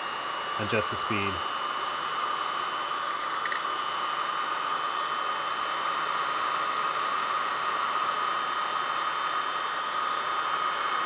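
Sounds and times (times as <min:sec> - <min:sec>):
cooling fan rushing: 0:00.0 - 0:05.6.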